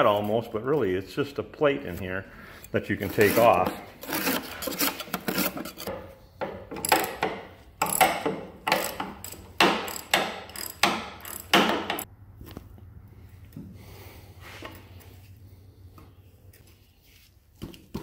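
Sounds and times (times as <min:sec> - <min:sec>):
ratchet wrench clicking: 0:06.8 - 0:07.2, 0:07.8 - 0:12.1.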